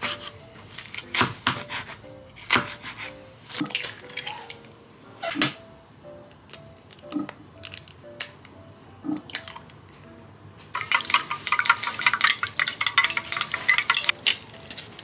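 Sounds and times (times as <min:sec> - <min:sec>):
egg cracking against bowl: 0:10.8 - 0:15.0.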